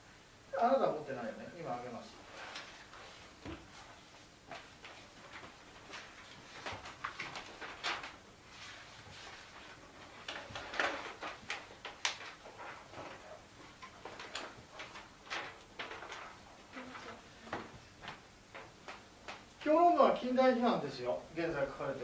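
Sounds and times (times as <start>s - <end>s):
paper sheets rustling: 2.2s - 19.8s.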